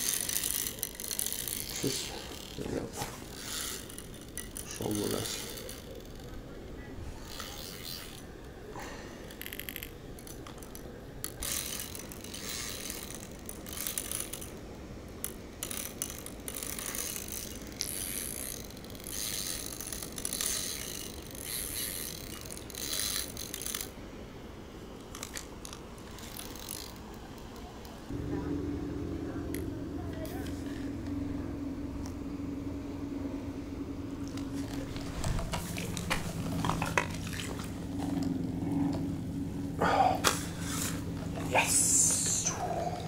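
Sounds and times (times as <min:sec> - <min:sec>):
fishing reel ratcheting: 0:00.0 - 0:06.5, 0:07.2 - 0:08.4, 0:09.2 - 0:24.0, 0:25.0 - 0:27.5, 0:34.2 - 0:38.3, 0:40.2 - 0:43.0.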